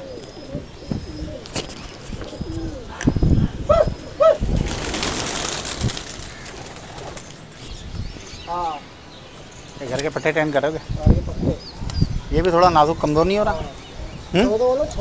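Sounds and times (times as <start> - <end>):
pigeons cooing: 0.0 - 7.4.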